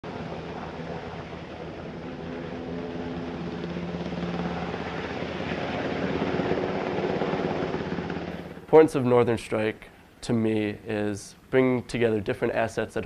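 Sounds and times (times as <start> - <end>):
helicopter engine and rotor: 0.0 - 8.7.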